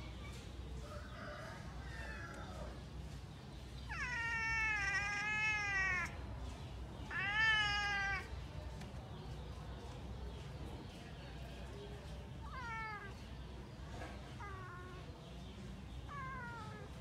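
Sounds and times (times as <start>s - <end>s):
cat meowing: 3.9s - 6.3s, 7.0s - 8.4s, 12.4s - 13.3s, 14.4s - 15.1s, 16.0s - 17.0s.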